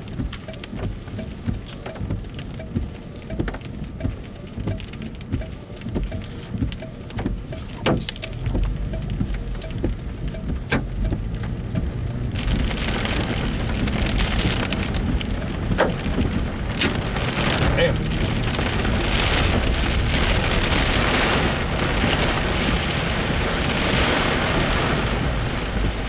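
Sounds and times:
raindrops ticking on a car: 0.0 - 26.0
low rumble: 7.8 - 26.0
heavy rain hissing: 15.9 - 25.8.

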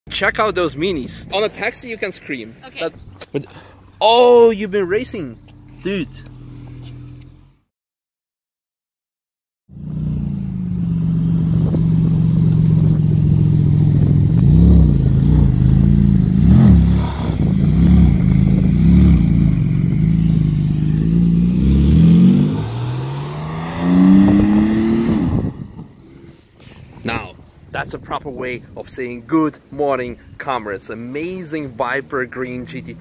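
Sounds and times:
sports car engine revving: 5.0 - 7.6, 9.7 - 26.0.

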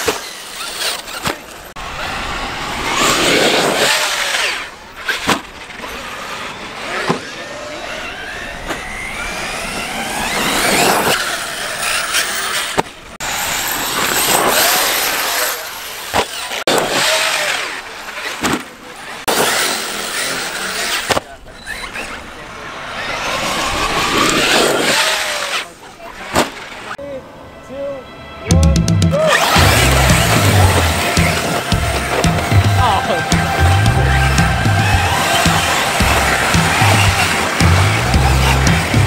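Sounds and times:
tyres on dirt: 0.0 - 27.0, 29.1 - 39.0
electric motor whine: 29.4 - 39.0
sharp knocks: 34.4 - 39.0.

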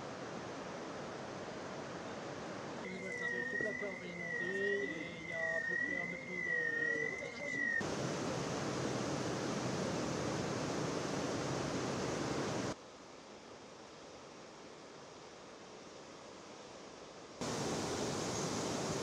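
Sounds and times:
floodwater rushing: 7.8 - 12.8, 17.4 - 19.0.

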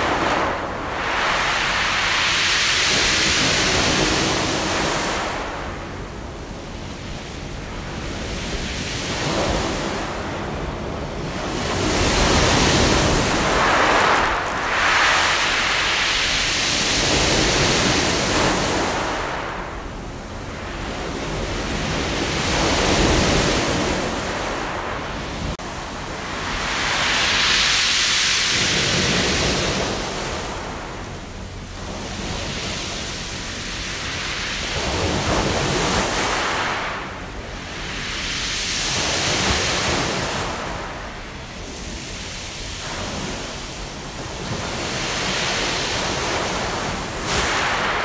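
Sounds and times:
waves breaking on pebbles: 11.4 - 19.4.

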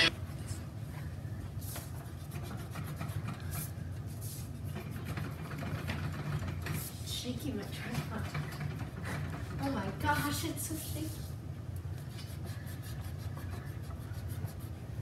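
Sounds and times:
steady low hum: 0.0 - 4.8
eraser rubbing on paper: 1.6 - 5.2, 12.0 - 14.8.

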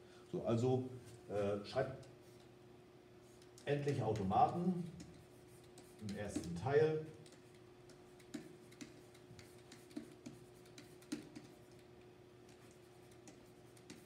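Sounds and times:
low steady hum: 0.0 - 14.0
stylus tapping and scratching: 3.3 - 14.0.

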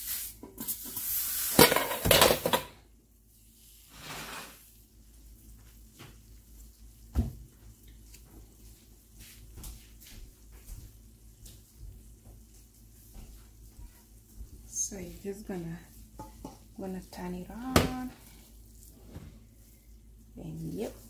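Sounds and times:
metal pot clattering on stovetop: 1.6 - 2.8.

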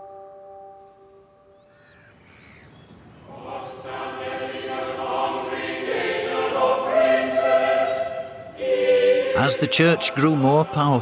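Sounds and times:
choir singing sustained notes: 3.1 - 11.0.

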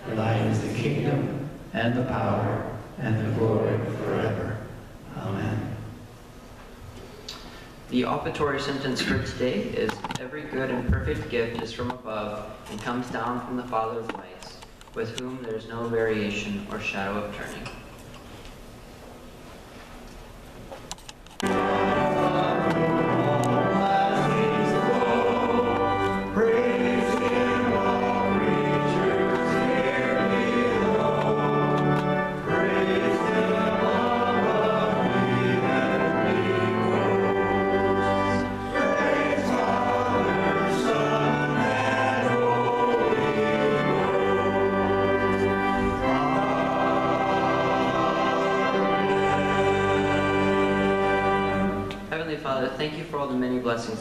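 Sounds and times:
church choir singing: 0.0 - 4.8, 21.4 - 51.9.

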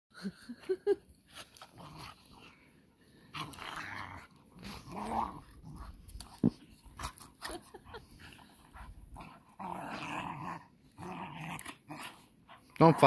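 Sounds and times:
dog play growl: 0.6 - 13.0.

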